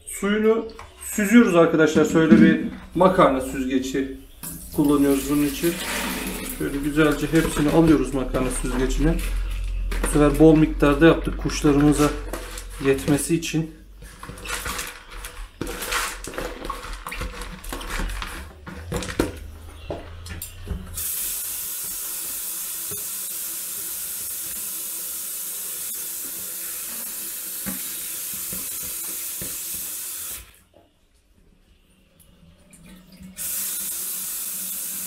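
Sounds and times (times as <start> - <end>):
grains rattling into plastic colander: 4.8 - 10.7, 14.0 - 19.4.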